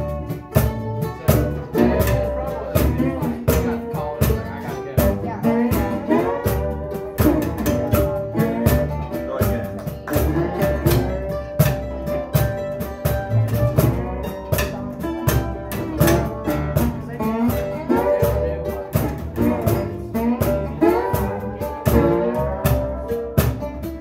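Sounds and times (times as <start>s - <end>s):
cajon beat: 0.0s - 24.0s
guitar: 0.0s - 24.0s
upright bass: 0.0s - 24.0s.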